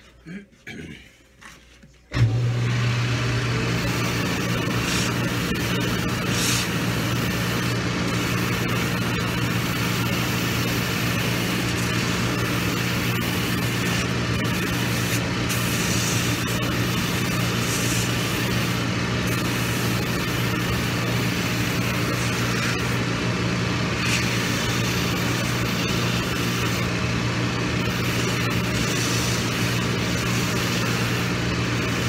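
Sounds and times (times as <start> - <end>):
machine motor hum: 2.1 - 32.0
sanding band grinding rubber sole: 3.8 - 18.8.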